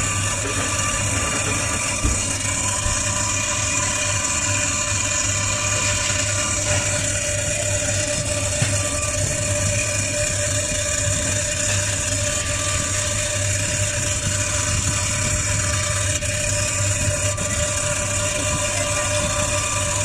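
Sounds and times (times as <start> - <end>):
freezer compressor humming: 0.0 - 20.0.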